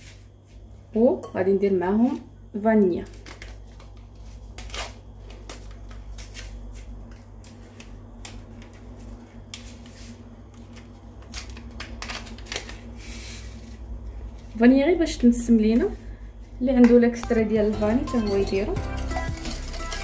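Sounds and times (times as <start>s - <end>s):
paper sachet clicks and rustles: 3.0s - 9.9s, 10.5s - 13.8s.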